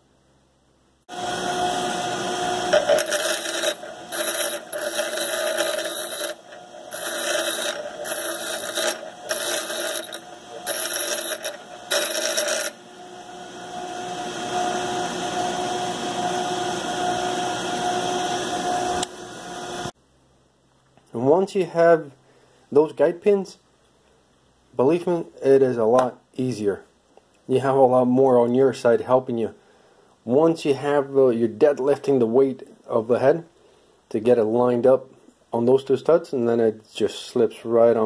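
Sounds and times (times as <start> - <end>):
bench grinder running: 1.1 - 19.9
steel grinding on wheel: 2.5 - 12.8.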